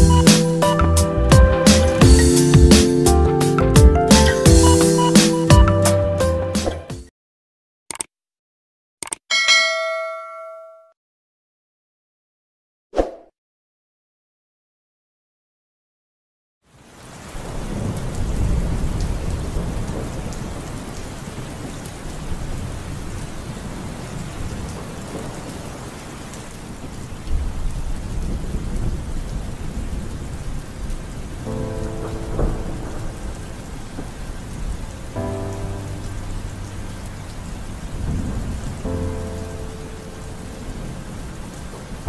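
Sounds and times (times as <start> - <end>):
heavy rain: 0.0 - 6.5, 16.6 - 42.0
held musical chords: 0.0 - 6.6
thunder rumbling: 17.2 - 25.8, 26.7 - 42.0.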